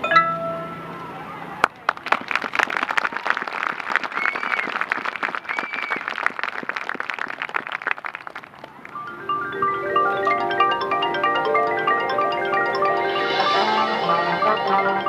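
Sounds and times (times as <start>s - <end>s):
crowd applauding: 1.6s - 9.1s
whistle-like calls: 4.0s - 4.8s, 5.4s - 6.2s.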